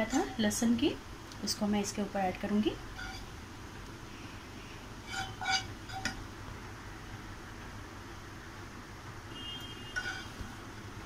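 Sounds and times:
low kitchen hum: 0.0 - 11.0.

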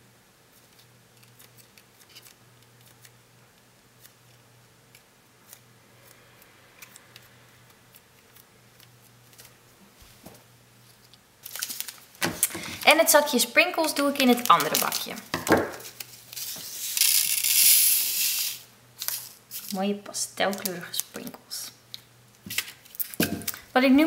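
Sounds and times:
plastic sachet crinkling: 11.0 - 17.6, 20.4 - 23.7.

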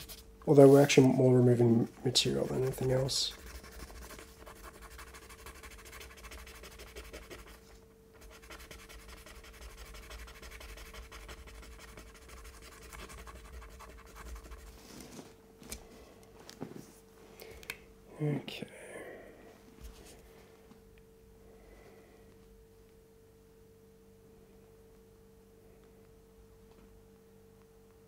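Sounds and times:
sandpaper rasping on plastic: 2.5 - 7.6, 8.2 - 14.7.

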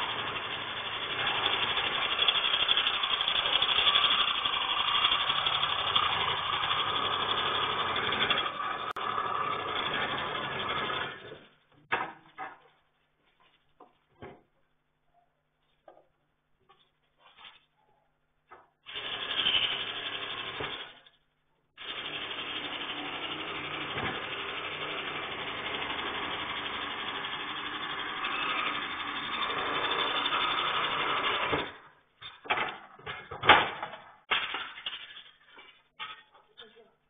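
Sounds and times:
power tool cutting exhaust pipe: 0.0 - 11.2, 18.9 - 21.0, 21.8 - 31.8
sharp metal knocks and clatter: 31.4 - 36.5.

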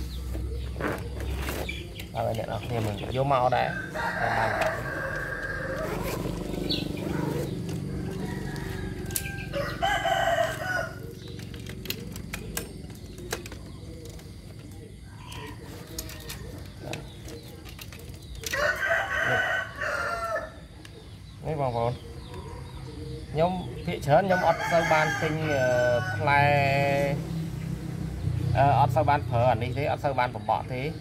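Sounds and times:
rooster crowing: 3.6 - 11.1, 18.5 - 20.7, 24.2 - 26.5.

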